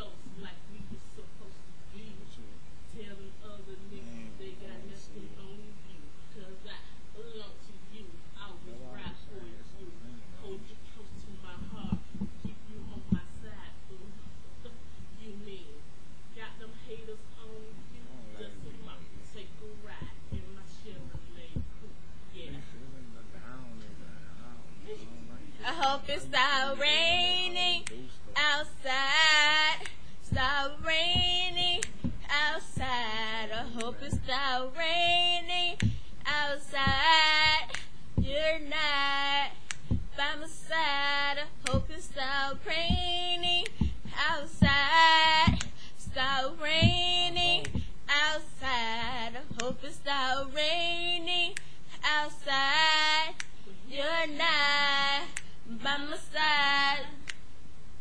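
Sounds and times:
woman singing unaccompanied: 0.0s - 21.8s, 25.6s - 57.4s
breaths: 35.9s - 36.2s, 43.8s - 44.0s, 45.7s - 46.0s, 51.6s - 51.9s.

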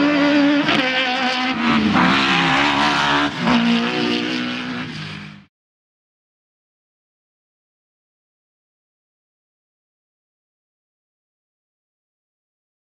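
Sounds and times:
buggy engine revving past: 0.0s - 5.5s.

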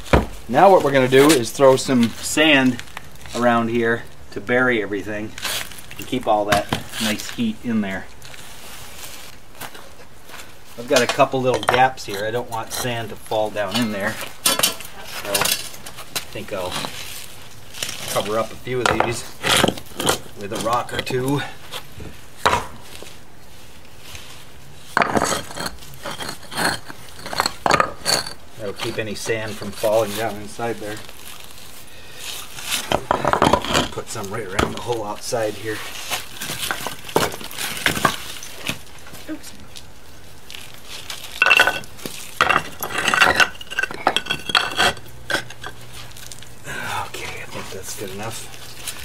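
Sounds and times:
rocks knocking and scraping: 0.0s - 49.0s
stone clacking on stone: 25.0s - 29.8s, 32.8s - 34.0s, 36.4s - 38.9s, 41.2s - 46.4s.

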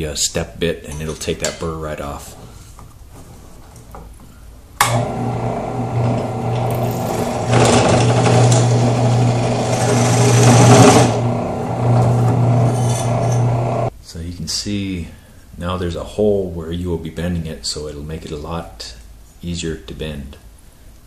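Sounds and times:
drill press motor humming: 4.8s - 13.9s
drill bit rasping into metal: 6.0s - 13.9s.

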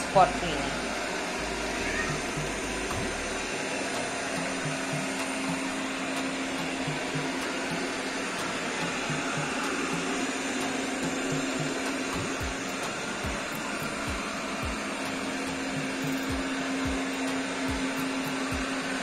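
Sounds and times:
low regular pulse: 0.0s - 3.5s, 4.4s - 6.0s.

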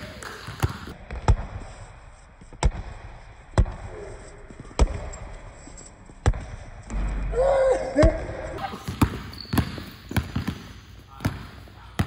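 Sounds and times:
basketball bouncing on gym floor: 0.0s - 1.7s, 2.6s - 4.0s, 4.7s - 5.3s, 6.2s - 7.0s, 8.0s - 12.0s.

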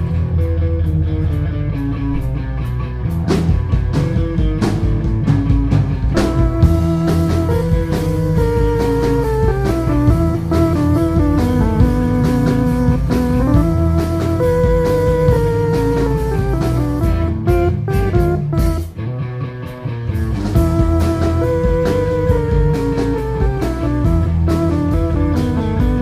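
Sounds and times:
bass guitar: 0.0s - 26.0s
drums: 0.0s - 26.0s
electric guitar: 0.0s - 26.0s.

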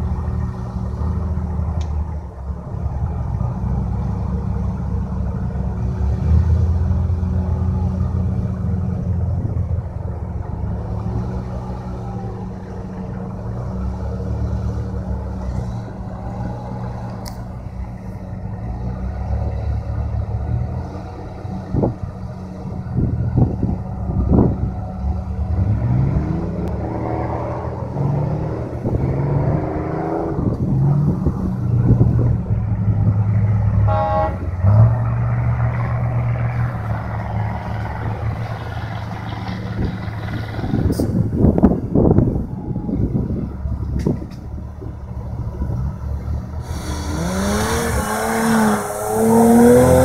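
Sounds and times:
truck engine running under load: 0.0s - 50.0s
horn toot: 33.8s - 34.8s.

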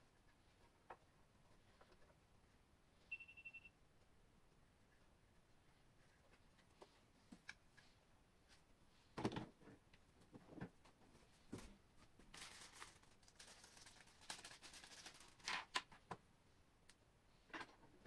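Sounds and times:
packaging rustling: 12.3s - 15.8s.

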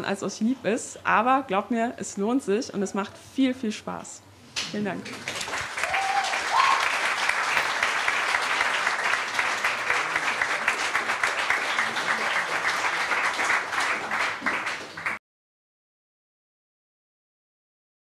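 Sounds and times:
audience applauding: 5.1s - 15.2s.

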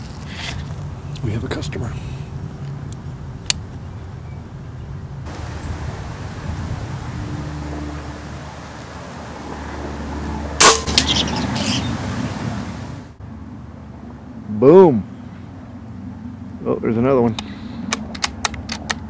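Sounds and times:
air rifle shot crack: 10.6s - 11.2s.

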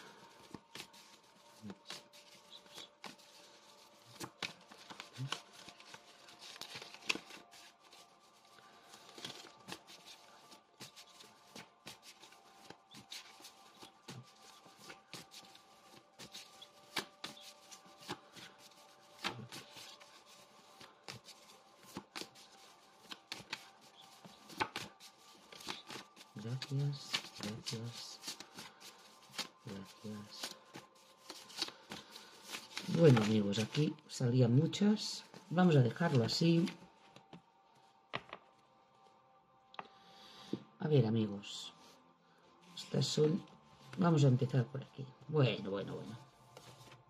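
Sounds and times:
cards being shuffled: 0.0s - 34.6s, 46.0s - 47.0s.

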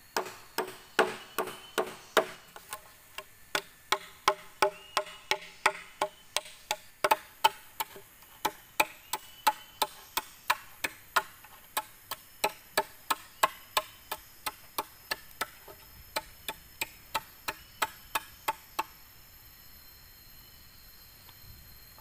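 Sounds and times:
machete chopping bamboo: 0.2s - 15.6s.

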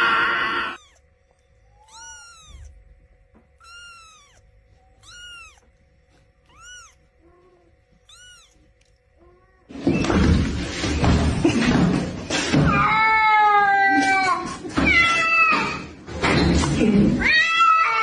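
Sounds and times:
kitten meowing: 0.6s - 1.0s, 1.7s - 2.8s, 3.6s - 5.7s, 6.4s - 9.7s.

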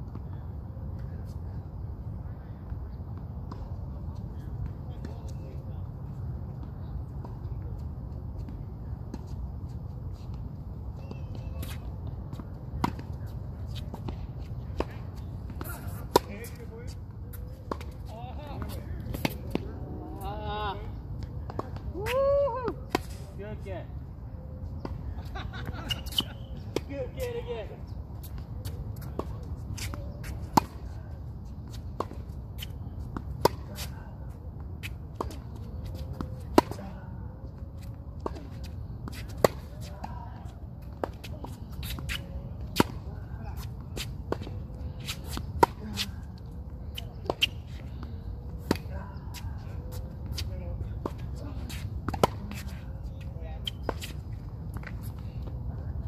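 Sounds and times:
shoes scuffing on court: 3.5s - 19.9s, 24.8s - 37.0s, 37.6s - 55.8s
racket hitting tennis ball: 41.0s - 46.2s, 51.0s - 52.8s.

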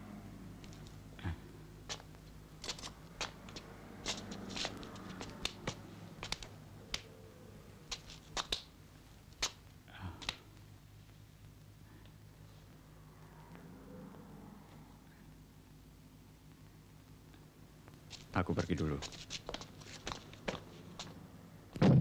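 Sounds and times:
low steady hum: 0.0s - 22.0s
hands slapping: 1.9s - 7.1s, 7.9s - 8.7s, 9.4s - 9.6s, 10.2s - 10.5s, 19.0s - 21.2s.

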